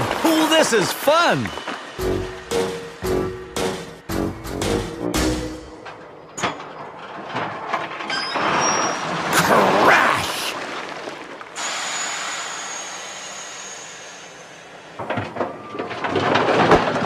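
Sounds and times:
steady hiss: 0.2 - 4.2, 11.6 - 15.0.

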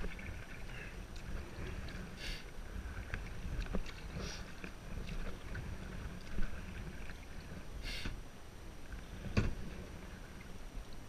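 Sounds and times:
paddle strokes splashing in water: 0.0 - 8.2.

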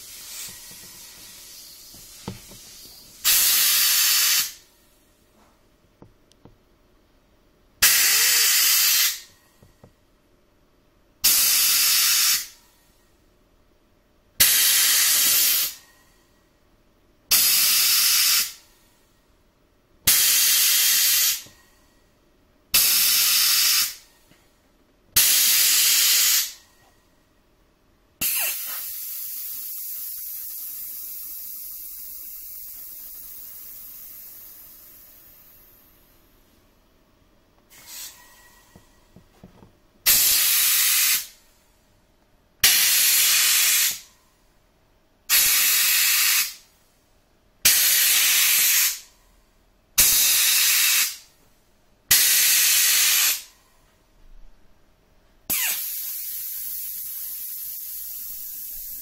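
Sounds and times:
compressed air hissing: 0.0 - 4.7, 7.8 - 9.4, 11.2 - 12.6, 14.4 - 15.9, 17.3 - 18.7, 20.1 - 21.6, 22.7 - 24.1, 25.2 - 26.6, 28.2 - 36.0, 37.7 - 39.0, 40.0 - 41.4, 42.6 - 44.2, 45.3 - 46.7, 47.6 - 49.1, 50.0 - 51.3, 52.1 - 53.6, 55.5 - 59.0.

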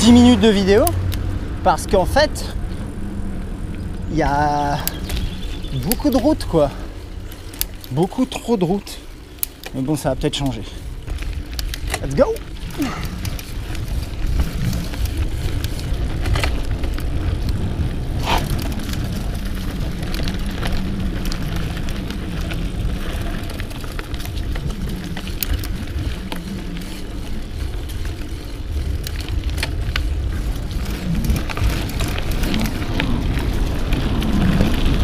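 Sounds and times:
bike tyres rumbling: 0.0 - 35.0
bike clicks and knocks: 3.7 - 35.0
wind on microphone: 10.8 - 35.0.

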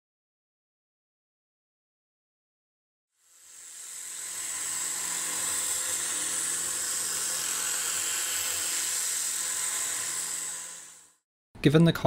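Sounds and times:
end mill cutting plywood: 3.2 - 11.2
mill spindle whirring: 3.2 - 11.2.

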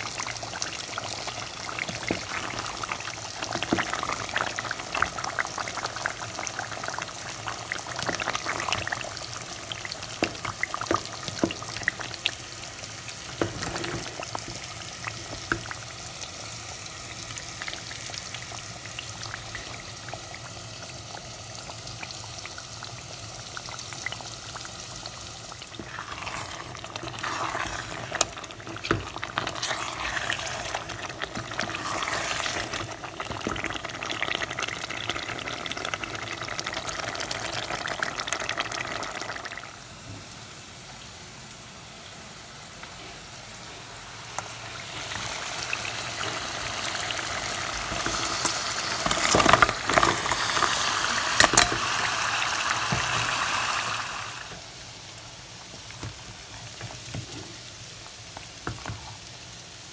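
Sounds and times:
curry sizzling in pot: 0.0 - 59.9
spoon scraping pot: 25.8 - 32.8.

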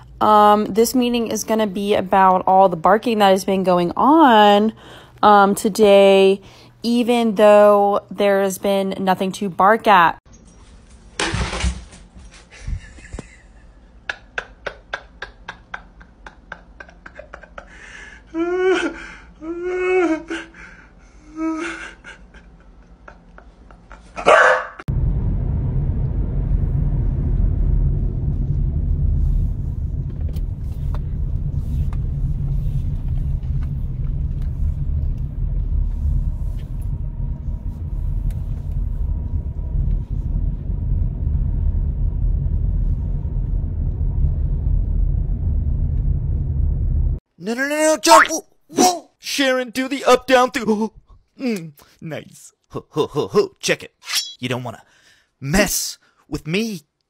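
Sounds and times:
dog barking: 24.2 - 24.8
car rumble from inside cabin: 24.9 - 47.2.

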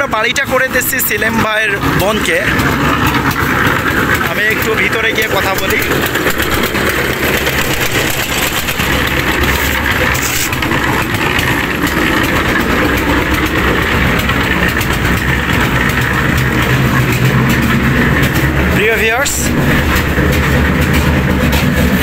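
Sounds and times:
engine droning steadily: 0.0 - 22.0.

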